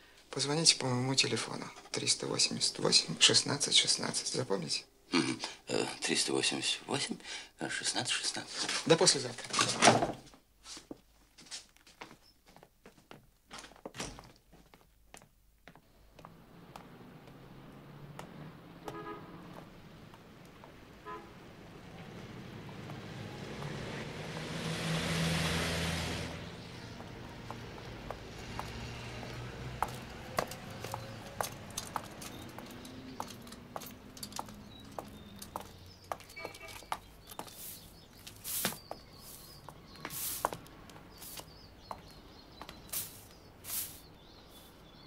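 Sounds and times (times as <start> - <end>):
car passing by: 16.1 - 36.7
small birds chirping: 26.4 - 45.0
stiff broom sweeping pavement: 36.4 - 44.9.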